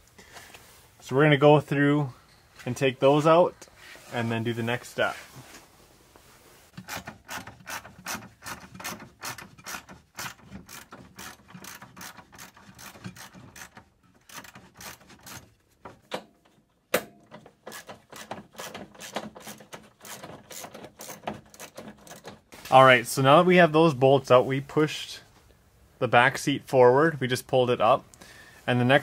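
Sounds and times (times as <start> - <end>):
ratchet wrench clicking: 8.8 - 15.4.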